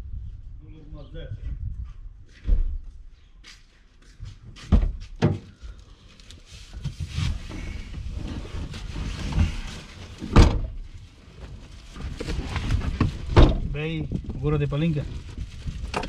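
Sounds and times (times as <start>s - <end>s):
rustling: 5.5s - 16.0s.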